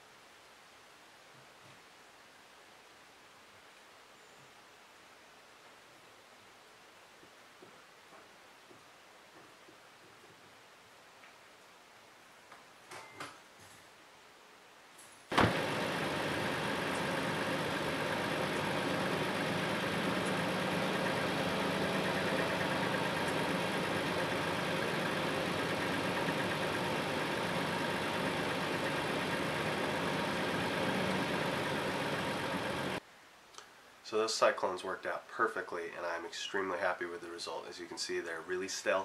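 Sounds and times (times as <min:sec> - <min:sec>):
pickup truck engine idling: 0:15.3 - 0:33.0
faint clicks: 0:33.5 - 0:33.8.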